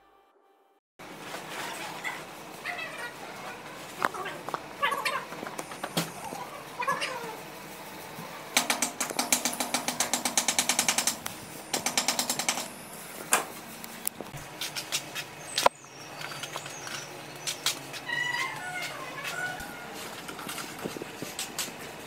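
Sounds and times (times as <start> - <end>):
cat meowing: 4.1 - 5.3, 6.3 - 7.4, 18.0 - 20.0
scattered knocks: 8.6 - 12.7.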